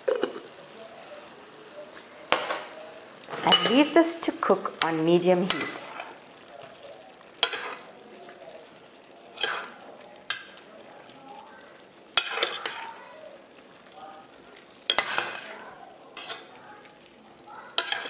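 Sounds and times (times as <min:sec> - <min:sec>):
low sizzle of cooking pot: 0:00.0 - 0:18.0
metal spoon scraping a pot: 0:09.4 - 0:10.4, 0:12.2 - 0:13.0, 0:14.9 - 0:16.6, 0:17.8 - 0:18.0.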